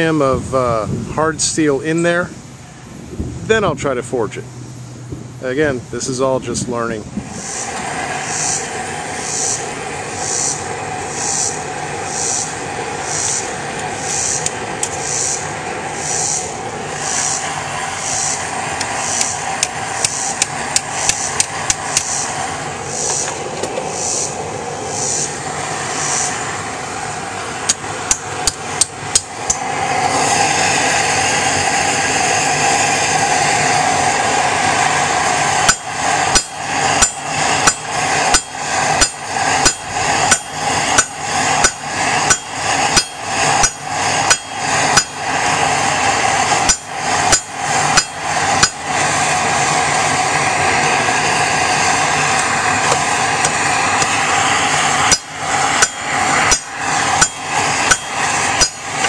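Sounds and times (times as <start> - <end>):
gas forge burner noise: 0.0 - 59.0
hammer striking hot steel on anvil: 17.0 - 22.4, 27.6 - 29.8, 35.5 - 49.0, 52.4 - 59.0.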